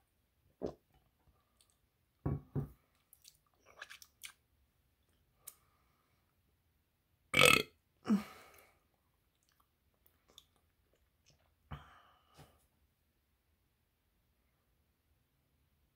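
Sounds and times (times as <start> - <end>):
person burping loudly: 7.3 - 8.3.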